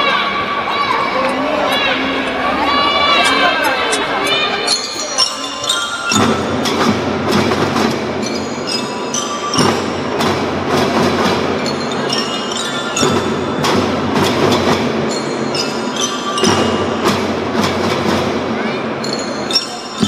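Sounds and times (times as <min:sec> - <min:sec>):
bell-like mallet percussion: 0:01.8 - 0:20.0
drumming: 0:05.6 - 0:20.0.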